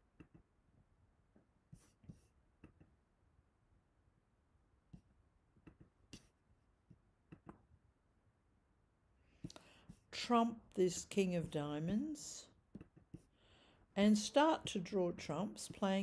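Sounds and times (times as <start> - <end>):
computer mouse clicks: 5.6 - 6.3, 7.3 - 7.6.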